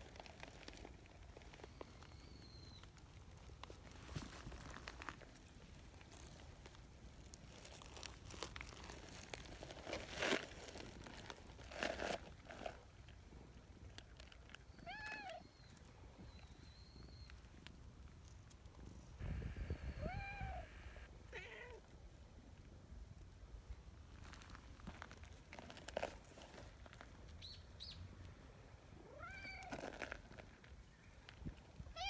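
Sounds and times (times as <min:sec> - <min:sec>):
cat meowing: 0:14.7 - 0:15.5, 0:19.5 - 0:21.8, 0:29.1 - 0:29.8.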